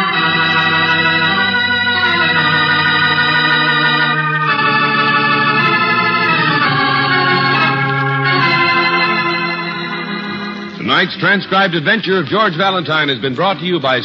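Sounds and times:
organ chords: 0.0s - 14.0s.

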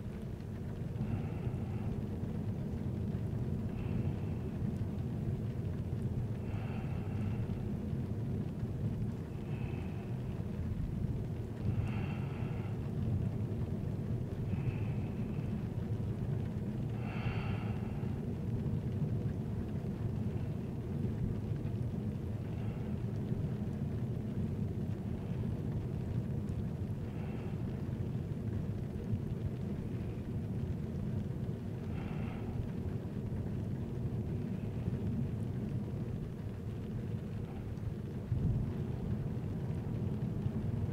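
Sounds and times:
soft breathing: 0.8s - 2.5s, 3.5s - 5.0s, 5.7s - 7.9s, 8.9s - 13.2s, 14.0s - 18.3s, 22.2s - 23.7s, 26.8s - 28.1s, 29.6s - 33.6s.

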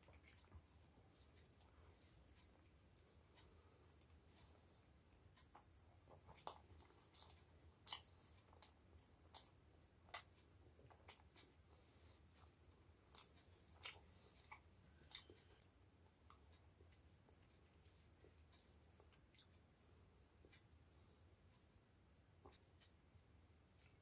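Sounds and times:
person chewing and lip smacking: 0.0s - 4.2s, 5.1s - 19.6s.

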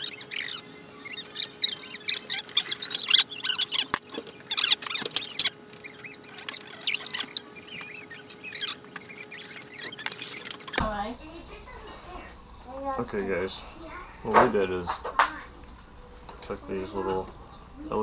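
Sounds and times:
fast-forwarded squeaky chirps: 0.0s - 10.8s.

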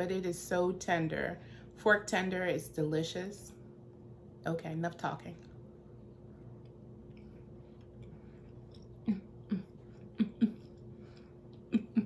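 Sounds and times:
low hum: 0.0s - 12.0s
woman making throaty sounds: 9.0s - 10.8s, 11.7s - 12.0s.

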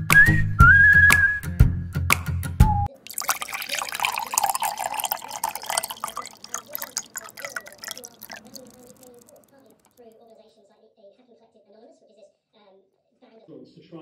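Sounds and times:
beer poured into a glass: 2.9s - 9.6s.

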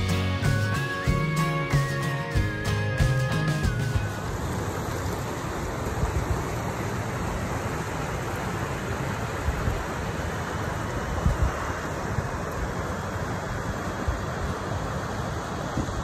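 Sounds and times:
river rushing over rocks: 1.4s - 16.0s
wind buffeting microphone: 11.0s - 12.8s, 15.6s - 16.0s.

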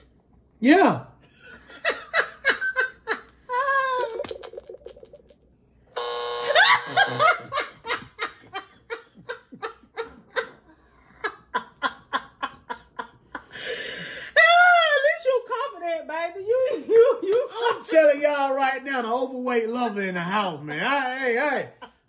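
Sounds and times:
man and woman laughing: 1.3s - 5.4s, 6.4s - 13.7s
electronic buzzer: 6.0s - 7.5s.

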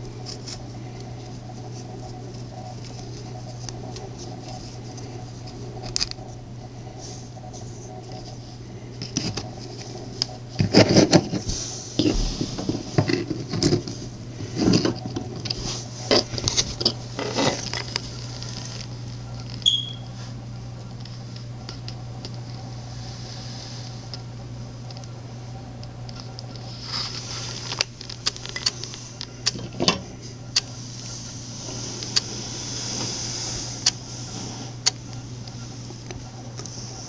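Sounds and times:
steady low hum: 0.0s - 37.0s
short high tone: 19.7s - 20.1s
rustling and handling clicks: 25.8s - 30.8s.

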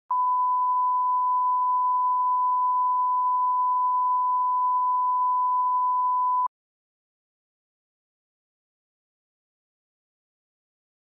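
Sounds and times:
steady sine test tone: 0.1s - 6.5s.

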